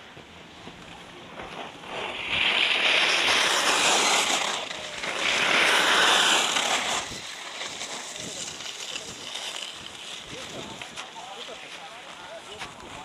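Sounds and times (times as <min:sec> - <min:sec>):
skis scraping on snow: 0:00.4 - 0:13.0.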